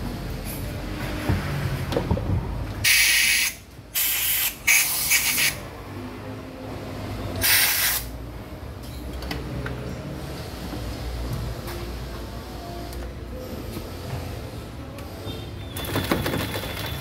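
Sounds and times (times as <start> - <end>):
compressed air hissing blasts: 2.8 - 5.6, 7.4 - 8.1.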